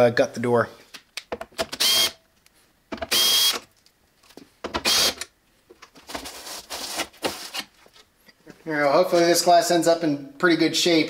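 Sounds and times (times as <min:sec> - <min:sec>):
cordless drill whirring: 0:01.8 - 0:02.2, 0:03.1 - 0:03.6, 0:04.8 - 0:05.2.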